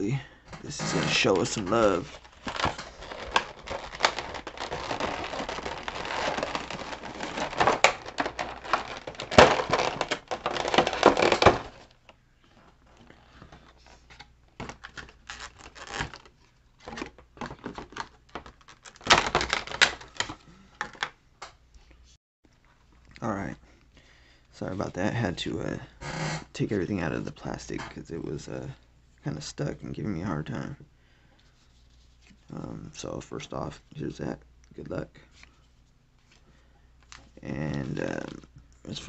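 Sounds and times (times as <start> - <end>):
plastic packaging crackling: 0.6 - 12.2, 12.9 - 21.1.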